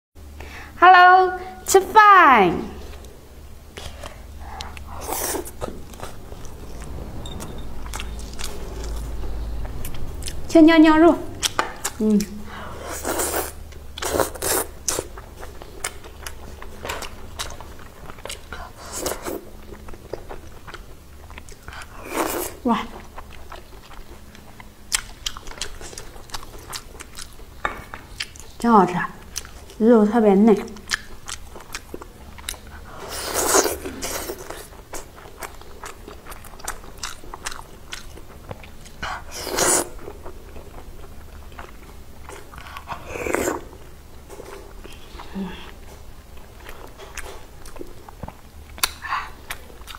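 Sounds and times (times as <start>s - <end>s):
chewing food: 3.8s - 10.5s, 11.4s - 29.9s, 30.5s - 49.9s
wet chewing and lip smacks: 30.6s - 39.0s, 46.4s - 49.9s.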